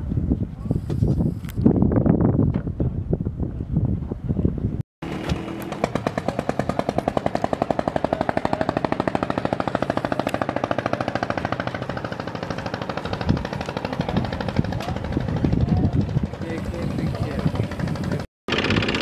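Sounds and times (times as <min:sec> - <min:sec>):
boat engine chugging: 0:05.4 - 0:19.0.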